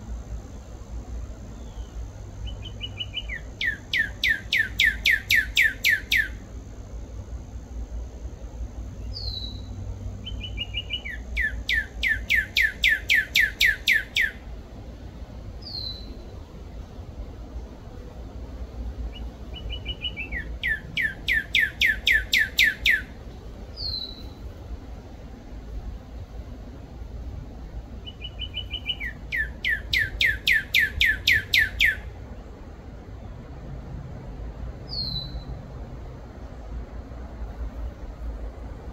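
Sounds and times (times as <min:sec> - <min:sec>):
cardinal whistling song: 0:01.6 - 0:06.4, 0:09.0 - 0:14.4, 0:15.6 - 0:16.2, 0:19.1 - 0:23.2, 0:23.8 - 0:24.4, 0:28.0 - 0:32.1, 0:34.9 - 0:35.5.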